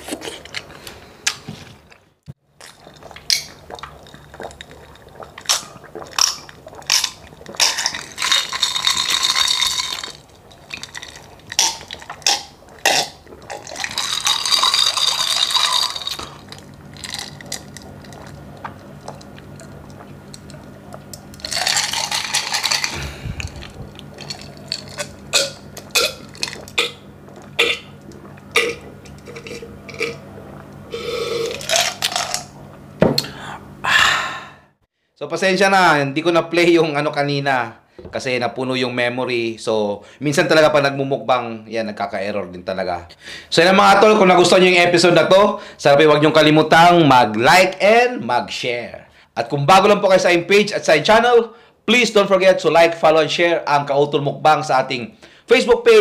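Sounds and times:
noisy eating and drinking: 2.6s - 32.6s.

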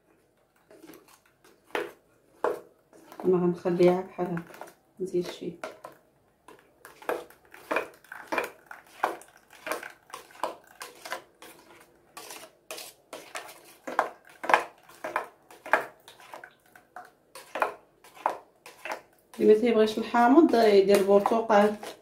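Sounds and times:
spoon scraping a metal strainer: 6.8s - 22.0s.

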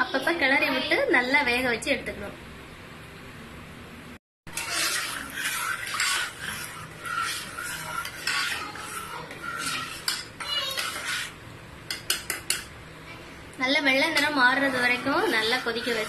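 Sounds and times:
spoon scraping a metal pot: 4.5s - 12.8s, 13.8s - 16.0s.

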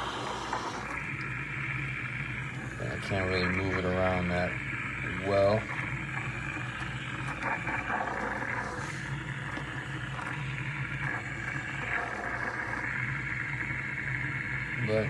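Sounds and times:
steam wand hissing: 0.0s - 1.1s, 7.4s - 13.0s
low machine hum: 0.0s - 15.0s
milk foaming with fine bubbles: 0.0s - 15.0s.

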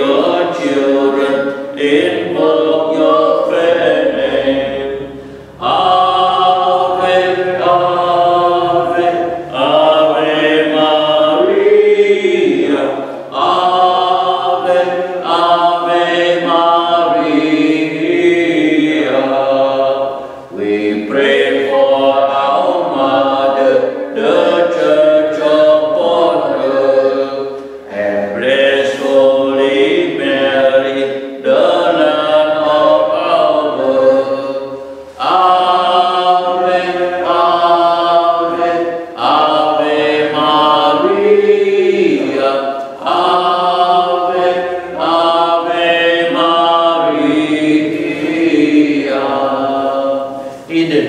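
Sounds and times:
voices singing a hymn: 0.0s - 51.0s.

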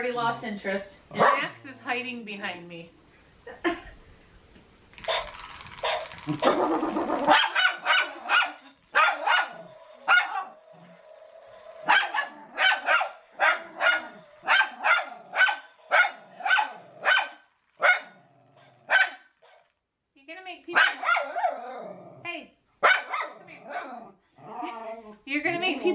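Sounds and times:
dog barking in sharp yaps: 11.9s - 18.2s, 18.9s - 19.6s, 22.8s - 23.3s.

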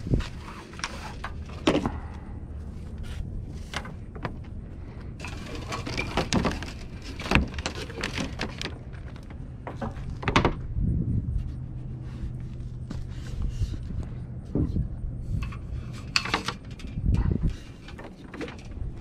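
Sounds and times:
low steady hum: 0.0s - 19.0s
rigging clinking and rattling: 5.2s - 10.6s, 15.3s - 19.0s.

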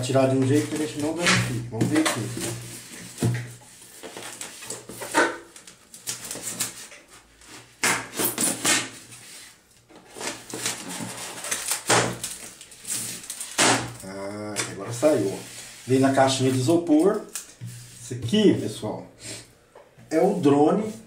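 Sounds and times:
tape and cardboard tearing: 0.4s - 2.4s, 4.0s - 9.2s, 9.9s - 14.6s.

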